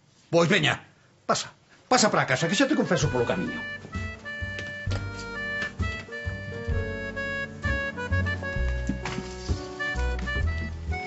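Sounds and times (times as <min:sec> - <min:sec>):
instrumental background music: 0:02.4 - 0:11.0.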